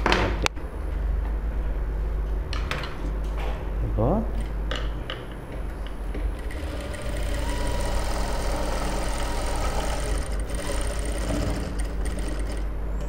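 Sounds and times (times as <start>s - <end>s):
sewing machine stitching: 6.2s - 12.8s.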